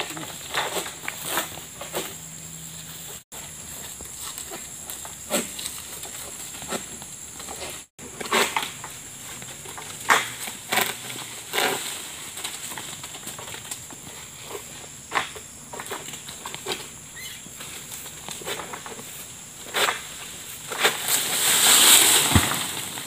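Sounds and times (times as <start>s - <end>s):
high insect drone: 0.0s - 23.0s
blade cutting palm fronds: 9.7s - 13.8s, 19.6s - 23.0s.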